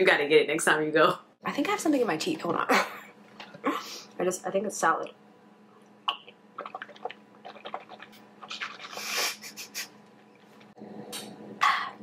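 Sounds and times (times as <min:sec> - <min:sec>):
person sipping coffee: 0:06.1 - 0:09.6
wet mouth clicks: 0:06.1 - 0:09.9
liquid swishing in mouth: 0:06.6 - 0:09.9.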